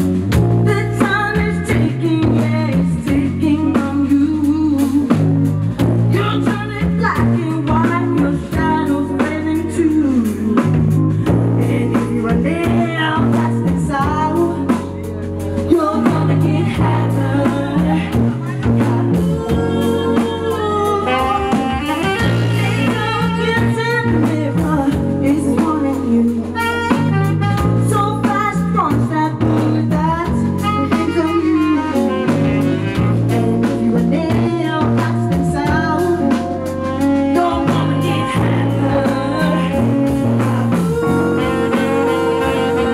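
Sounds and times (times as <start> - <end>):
bass: 0.0 - 42.9
drums: 0.0 - 42.9
saxophone: 0.0 - 42.9
women singing: 0.6 - 26.6, 27.8 - 42.9
trumpet: 11.6 - 24.8, 26.0 - 29.2, 29.8 - 42.9.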